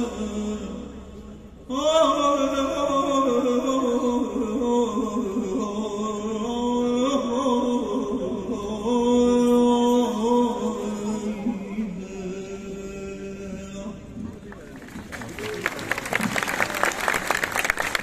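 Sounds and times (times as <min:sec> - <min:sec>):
man singing mourning chant: 0:00.0 - 0:14.3.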